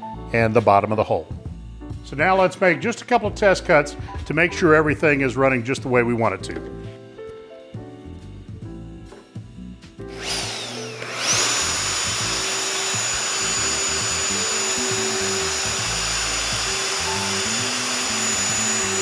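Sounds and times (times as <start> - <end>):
plunge router whining: 8.1 - 19.0
dust extraction hiss: 8.2 - 19.0.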